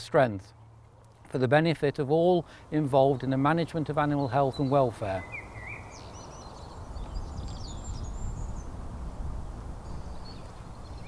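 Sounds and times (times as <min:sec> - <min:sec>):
small birds chirping and trilling: 0:02.2 - 0:11.0.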